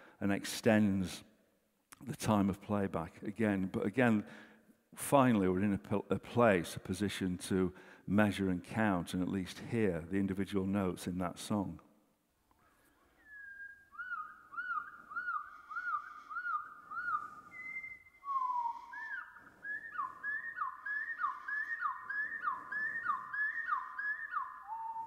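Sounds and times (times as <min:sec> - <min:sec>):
slowed-down bird song over loudspeakers: 0:14.0 - 0:25.0.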